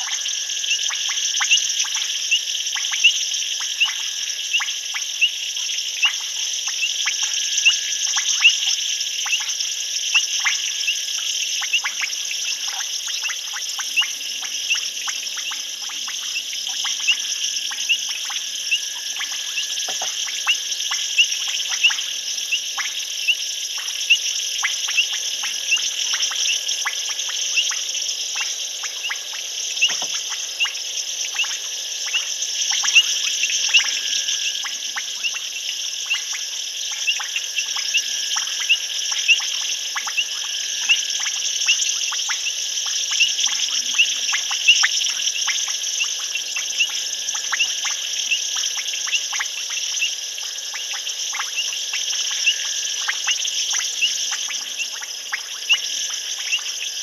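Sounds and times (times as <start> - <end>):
high-pitched insect trilling: 0.0 - 57.0.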